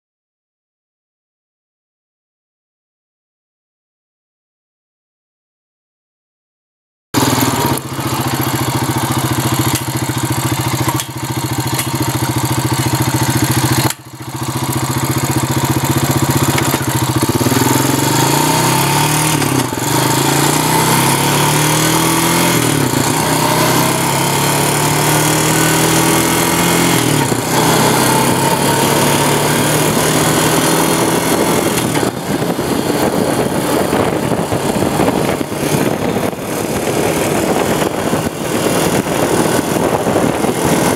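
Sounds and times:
atv engine accelerating: 0:07.2 - 0:40.9
wind on microphone: 0:26.0 - 0:40.9.

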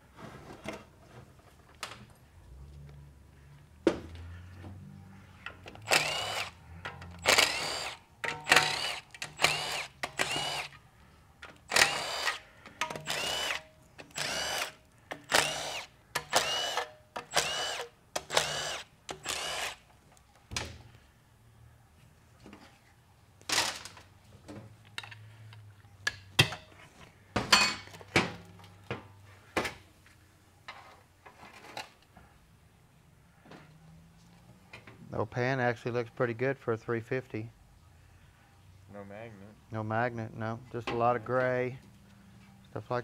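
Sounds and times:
impact wrench bursts: 0:05.8 - 0:10.8, 0:11.6 - 0:19.8.

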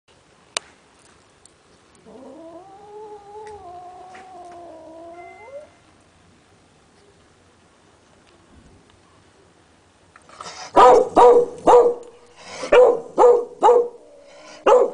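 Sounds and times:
cat yowling: 0:02.1 - 0:05.8.

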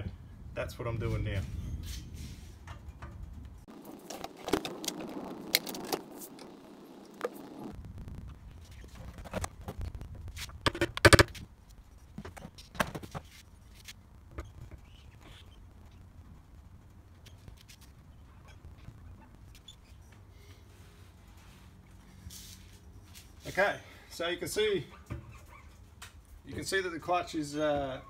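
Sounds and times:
scraping rustle: 0:01.0 - 0:06.6, 0:17.2 - 0:23.7.

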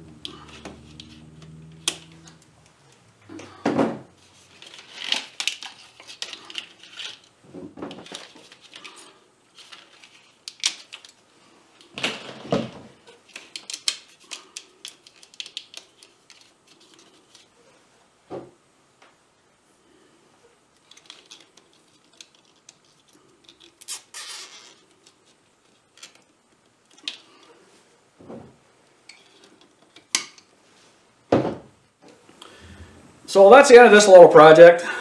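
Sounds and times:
rustling of plastic and cable: 0:00.1 - 0:17.9, 0:20.4 - 0:31.1
zip ties clicking: 0:21.2 - 0:24.9.

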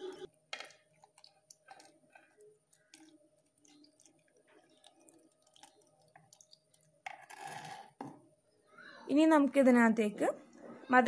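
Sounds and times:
milk pouring into jar: 0:00.6 - 0:08.0.

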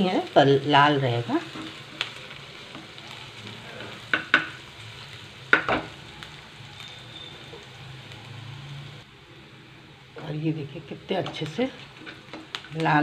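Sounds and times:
onions sizzling in oil: 0:00.0 - 0:13.0
spatula scraping a pan: 0:01.4 - 0:03.1.

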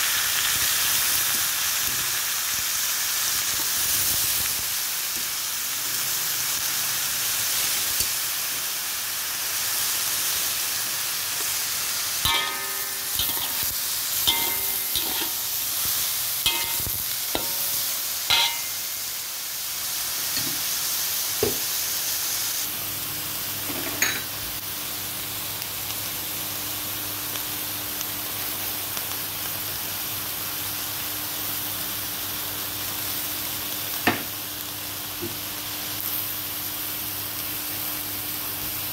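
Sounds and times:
food sizzling in a pan: 0:00.0 - 0:38.9
metal spatula clanking on pan: 0:12.3 - 0:15.7, 0:16.4 - 0:19.0, 0:23.8 - 0:24.3.

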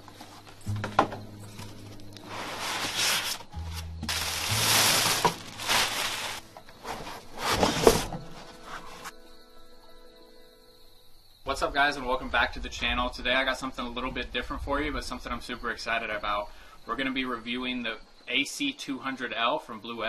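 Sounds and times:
quiet background music: 0:00.0 - 0:20.0
plastic bag rustling: 0:01.4 - 0:09.1
cardboard and foam rubbing: 0:02.2 - 0:09.1.

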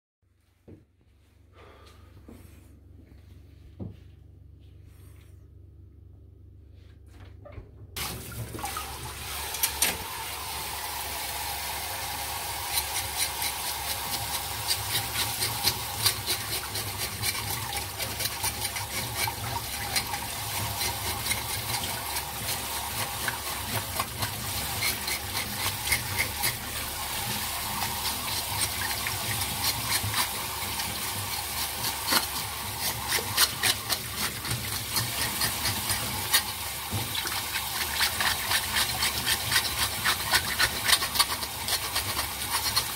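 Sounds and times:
tap water pouring into bowl: 0:08.0 - 0:42.9
water splashes: 0:08.0 - 0:42.9
fish scaler scraping scales: 0:12.2 - 0:42.9.

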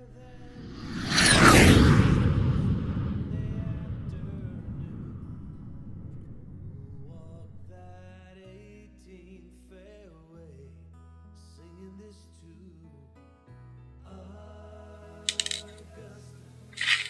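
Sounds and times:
held low bass notes: 0:02.4 - 0:08.4.

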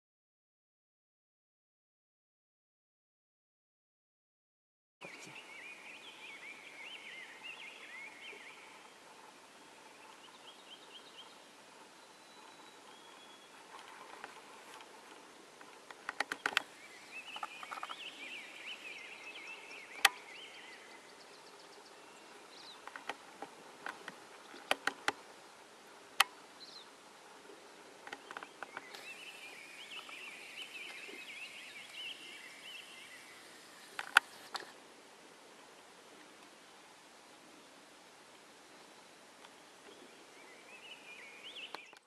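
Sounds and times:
songbird chattering song: 0:05.0 - 0:13.8, 0:16.1 - 0:23.2, 0:26.6 - 0:34.6, 0:38.6 - 0:42.0
sharp clicks: 0:15.9 - 0:16.7.

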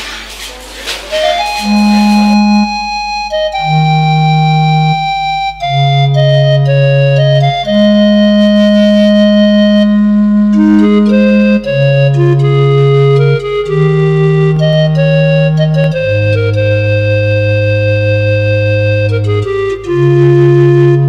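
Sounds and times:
sustained keyboard chords: 0:01.1 - 0:21.0
low bass note: 0:01.2 - 0:03.2.

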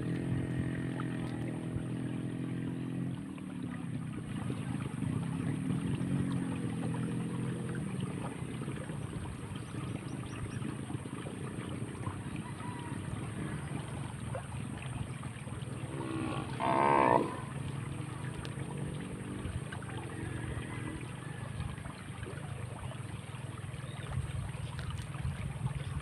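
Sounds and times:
cow mooing: 0:15.9 - 0:17.6.

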